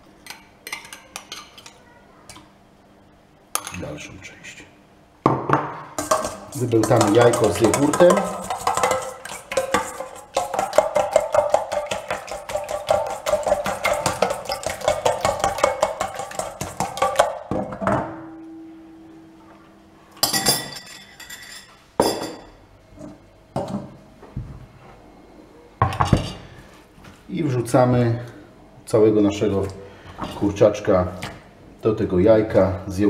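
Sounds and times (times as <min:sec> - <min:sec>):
utensil clinking in metal bowl: 0:06.0 - 0:18.2, 0:20.2 - 0:22.5.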